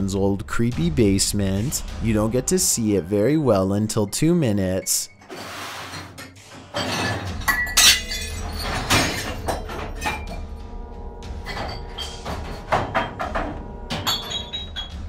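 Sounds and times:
background music with held notes: 0.0 - 15.0
objects crashing and clattering: 5.2 - 10.6, 11.3 - 15.0
glass clinking and breaking: 6.7 - 10.4, 11.4 - 15.0.

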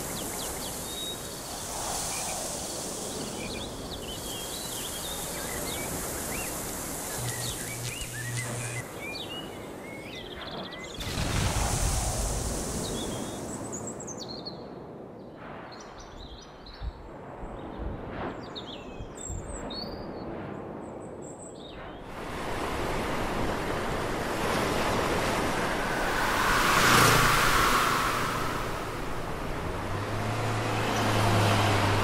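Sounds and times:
broad rush of noise: 0.0 - 8.9, 22.1 - 32.0
birds chirping: 0.0 - 11.4, 12.6 - 14.2
low hum: 7.0 - 8.8, 22.5 - 31.2.

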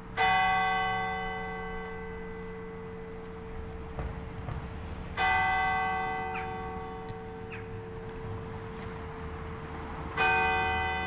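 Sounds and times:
church bell tolling: 0.0 - 4.4, 5.2 - 8.2, 10.2 - 11.0.

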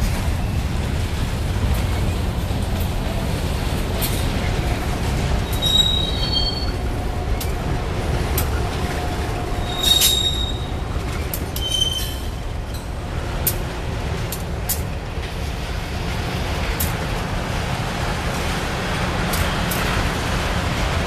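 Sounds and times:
freight train wheels rumbling: 0.0 - 21.0
rapid clicking of wheels on rail: 0.0 - 21.0
high-pitched wheel squeals: 5.4 - 6.8, 9.6 - 10.8, 11.6 - 12.4.

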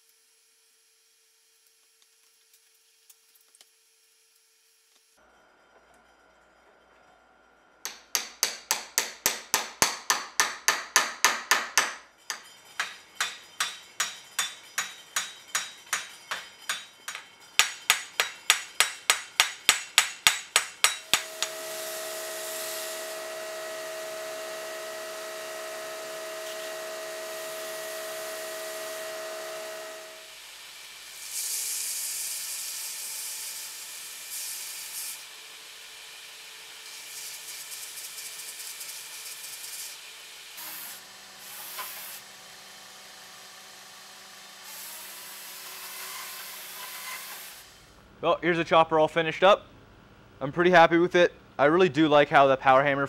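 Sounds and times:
hammer tapping metal: 7.8 - 21.7
belt grinder whine: 20.9 - 48.0
knife grinding hiss: 21.0 - 23.3, 31.0 - 32.7, 40.6 - 42.2, 45.8 - 47.9.

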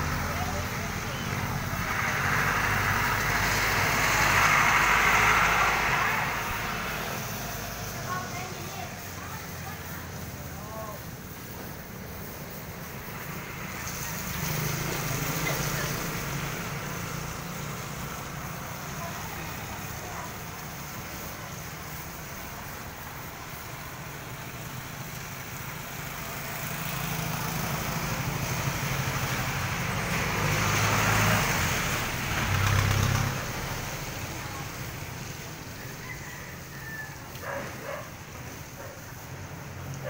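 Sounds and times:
motor vehicle passing close: 0.0 - 40.0
street traffic: 0.0 - 40.0.

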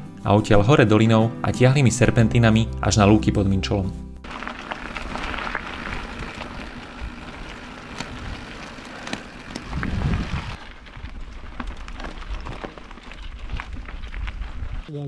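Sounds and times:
bike tyres crackling on gravel: 4.2 - 15.0
wind buffeting microphone: 4.4 - 14.9.

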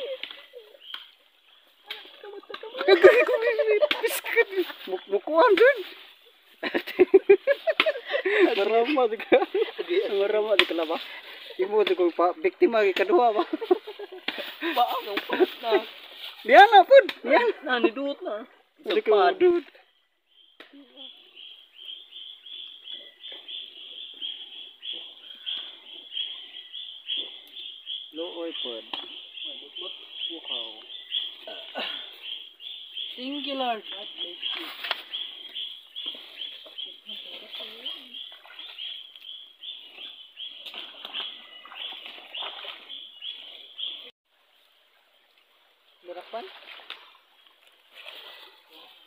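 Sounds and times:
rustling through undergrowth: 0.0 - 12.2, 13.5 - 17.0, 30.9 - 44.0
high chirping animal calls: 20.3 - 44.1.

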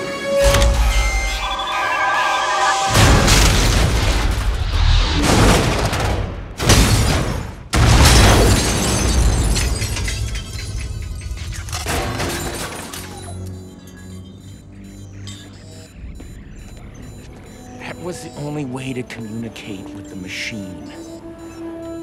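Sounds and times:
film score music: 0.0 - 6.7, 11.8 - 22.0
crashing debris: 2.9 - 13.1.

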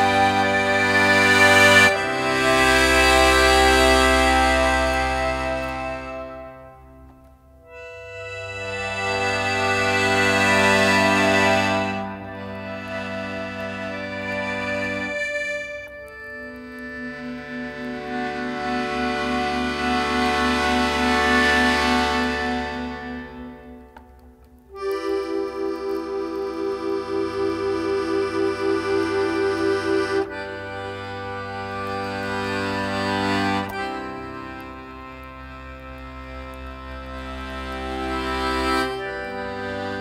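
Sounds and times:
accordion playing held chords: 0.0 - 40.0.

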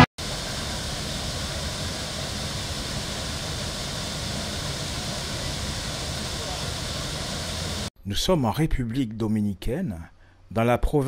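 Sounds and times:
waterfall over rocks: 0.2 - 7.9.

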